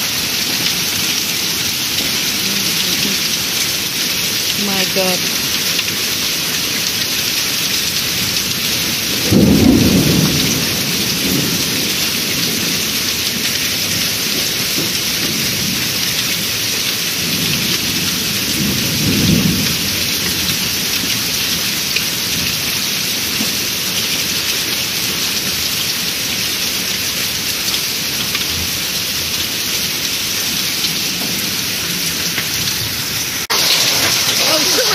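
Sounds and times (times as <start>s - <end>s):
heavy rain falling: 0.0s - 34.9s
thunder rumbling: 9.0s - 12.9s, 17.3s - 20.7s, 33.5s - 34.9s.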